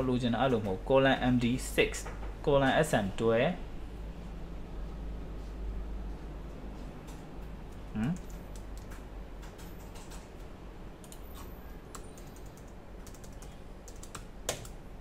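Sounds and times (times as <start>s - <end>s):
computer keys clicking: 7.0s - 14.8s
man humming hm: 7.9s - 8.3s.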